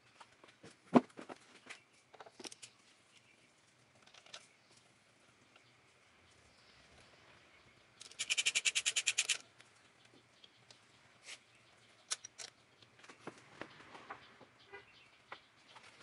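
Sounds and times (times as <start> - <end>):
ratchet wrench clicking: 8.0 - 9.4.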